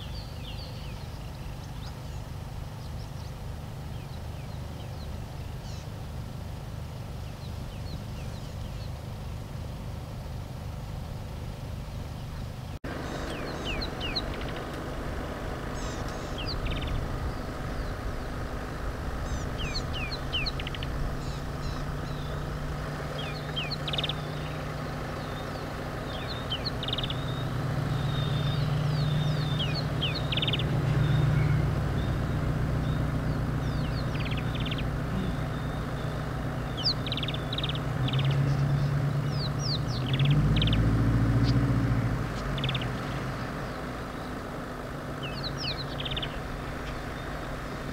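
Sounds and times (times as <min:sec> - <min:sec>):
vehicle engine idling: 0:00.0 - 0:47.9
birds chirping and whistling: 0:12.3 - 0:41.6, 0:42.3 - 0:44.5, 0:45.1 - 0:47.9.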